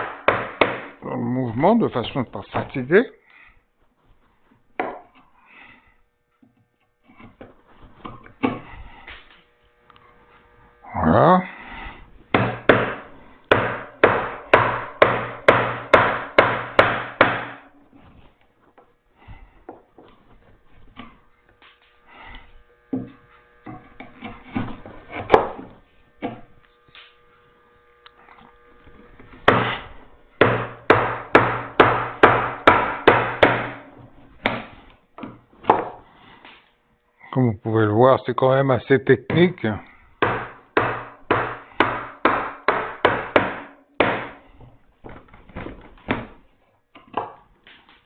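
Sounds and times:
mallet striking chisel: 0.0 - 1.0, 12.3 - 17.7, 29.4 - 36.0, 40.2 - 44.4.

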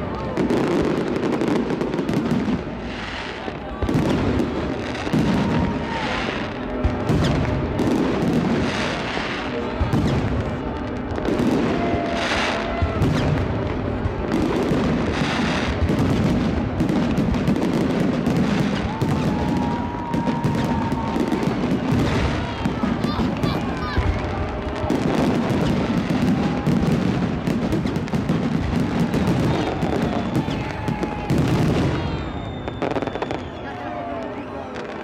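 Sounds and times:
fireworks bursts and crackle: 0.0 - 35.0
heavy fireworks booms: 0.0 - 35.0.

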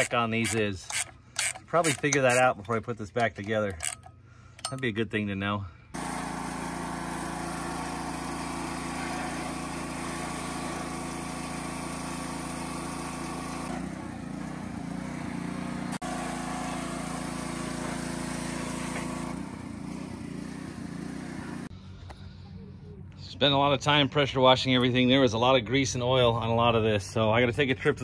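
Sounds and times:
pressure washer engine running: 6.0 - 21.7.

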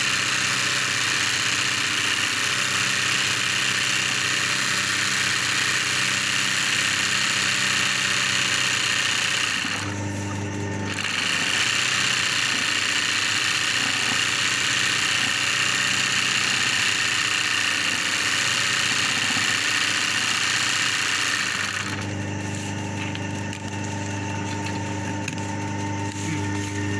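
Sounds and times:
electric motor hum: 0.0 - 26.9
sewing machine stitching rattle: 0.2 - 9.9, 10.9 - 22.0.

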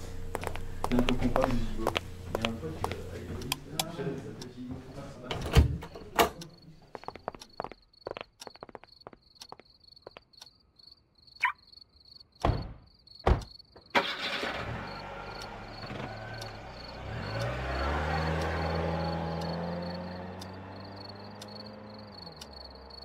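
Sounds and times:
crickets chirping: 5.9 - 23.0
car driving past: 14.0 - 23.0.

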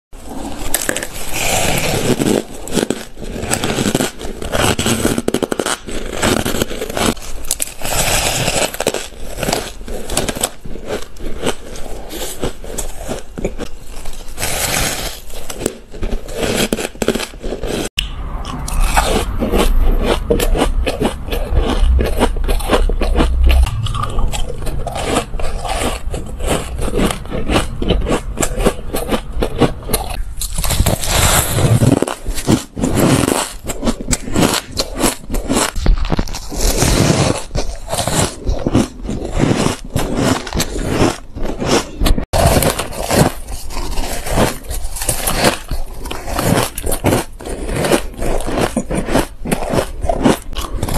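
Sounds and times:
ice crunching being chewed: 0.2 - 50.9
low rumble: 18.0 - 30.8.

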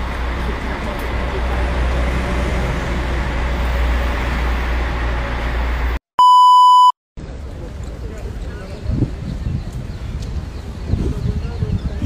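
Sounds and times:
street noise low rumble: 0.0 - 6.0, 7.2 - 12.0
electronic beep: 6.2 - 7.0.

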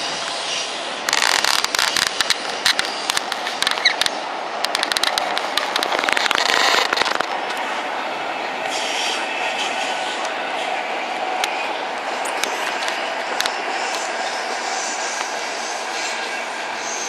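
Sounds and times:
train running rush: 0.0 - 17.0
crackling clicks: 1.1 - 7.7, 11.4 - 14.1.

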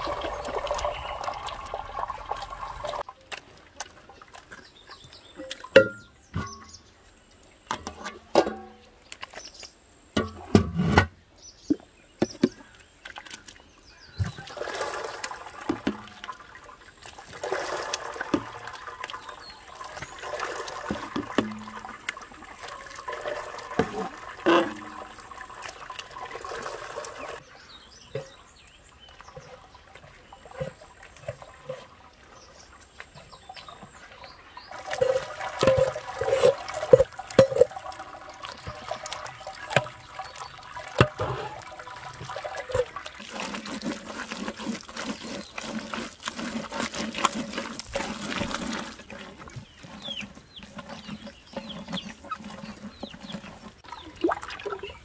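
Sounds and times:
liquid sloshing and splashing: 0.0 - 6.8, 11.6 - 55.0
ladle clinking on metal: 35.0 - 37.9.

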